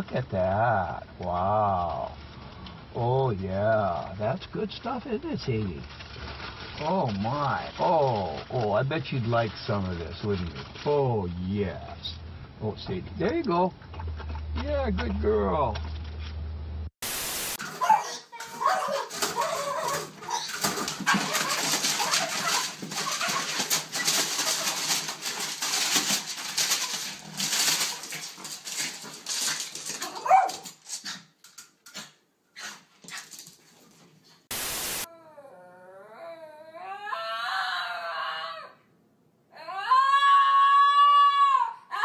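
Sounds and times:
scuffling and clattering: 4.0 - 12.2, 13.0 - 16.6, 17.7 - 34.5
static hiss bursts: 17.0 - 17.7, 34.4 - 35.1
dog whining: 17.7 - 25.9, 27.8 - 30.7, 35.0 - 38.8
small dog howling: 17.8 - 20.5, 35.1 - 38.8, 39.6 - 42.0.

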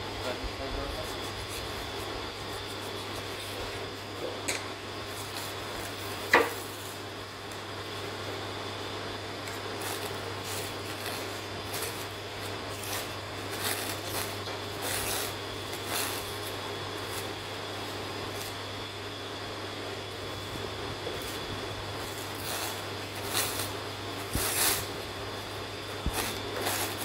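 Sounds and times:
steady background hum: 0.0 - 27.0
cling film crinkling and tearing: 9.4 - 18.6, 20.3 - 27.0.

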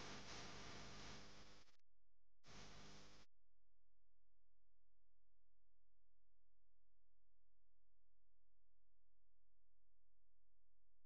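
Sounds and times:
faint steady hiss: 0.0 - 1.6, 2.5 - 3.2.

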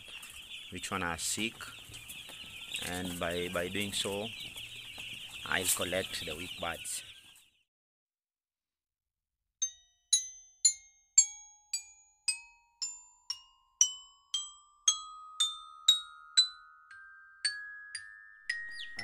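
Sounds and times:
mallet percussion notes climbing in pitch: 9.6 - 19.0.

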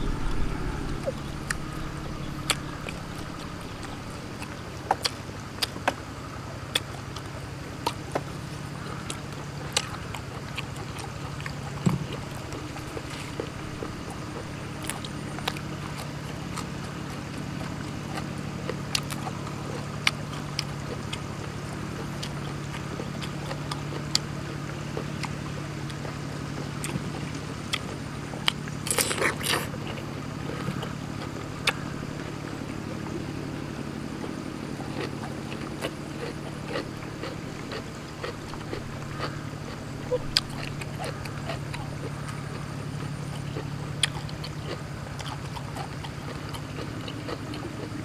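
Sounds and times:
crunchy bite into cucumber: 0.0 - 5.7, 26.8 - 32.3, 34.2 - 42.5
wet mouth clicks and chewing: 0.0 - 6.0, 6.6 - 48.0
low engine drone: 0.0 - 48.0.

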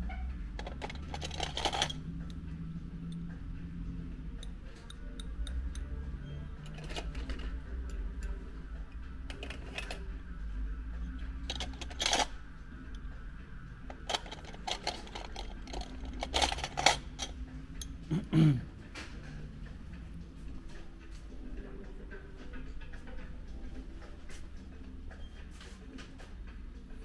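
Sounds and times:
steady low hum: 0.0 - 27.0
clips rattling: 0.6 - 2.0, 6.6 - 7.6, 11.4 - 12.4, 13.9 - 17.4
metal clips clicking and clinking: 0.6 - 2.0, 6.6 - 8.4, 11.5 - 12.3, 13.9 - 17.9.

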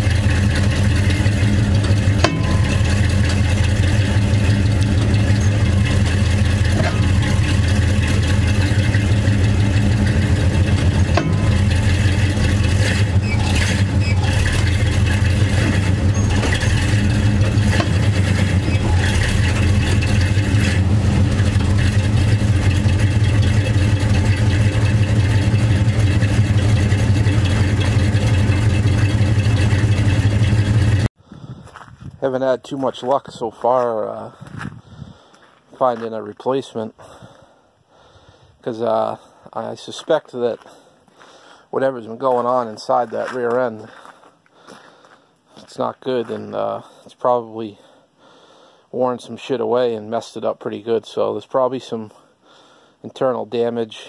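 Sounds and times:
differential grinding: 0.0 - 31.1
truck drivetrain drone: 0.0 - 31.2.

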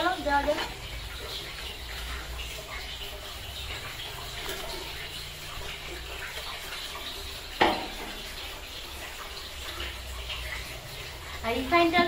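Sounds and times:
water boiling in a pot: 0.0 - 12.0
metallic clank: 7.6 - 8.2.

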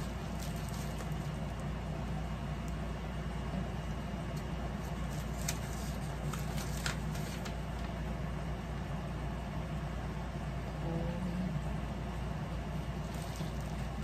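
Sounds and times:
plastic packaging crinkling: 0.0 - 1.7, 4.8 - 8.0, 13.0 - 14.0
steady low hum: 0.0 - 14.0.

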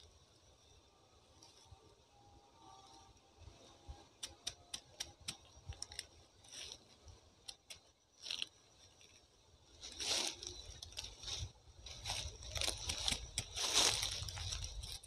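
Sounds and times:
knife clicking on spiny husk: 4.2 - 6.1
dry leaves rustling: 5.8 - 7.1, 8.2 - 15.0
handling in dry leaf litter: 8.2 - 15.0.

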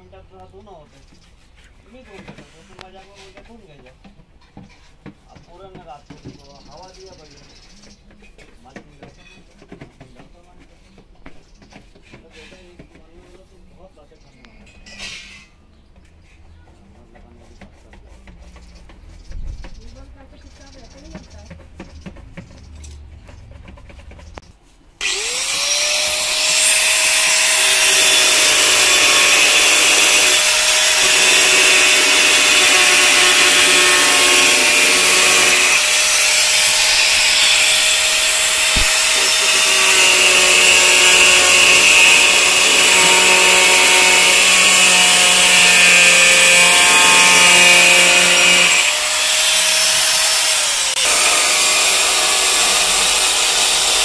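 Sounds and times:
angle grinder grinding steel: 25.0 - 54.0.

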